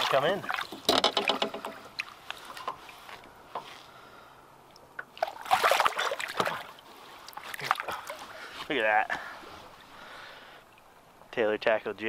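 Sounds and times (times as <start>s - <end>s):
water lapping: 0.0s - 11.2s
fish splashing: 5.1s - 8.4s.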